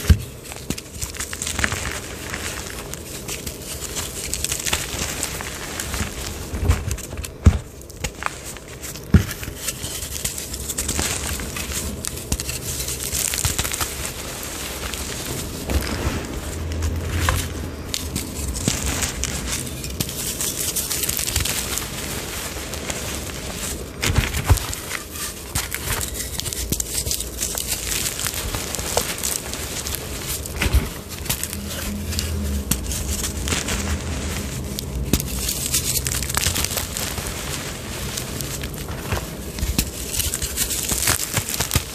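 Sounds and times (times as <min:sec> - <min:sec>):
hands crumbling chalk: 0:00.0 - 0:41.9
sharp chalk crack: 0:34.6 - 0:41.9.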